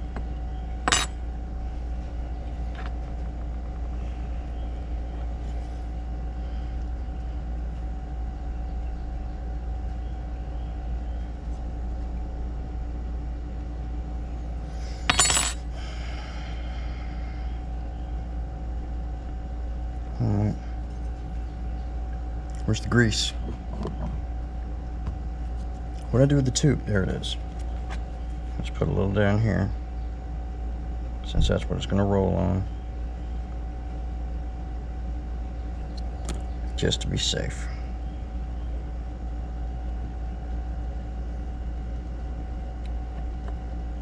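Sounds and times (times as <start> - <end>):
low hum: 0.0 - 44.0
metal parts clinking: 0.9 - 1.1, 15.1 - 15.6.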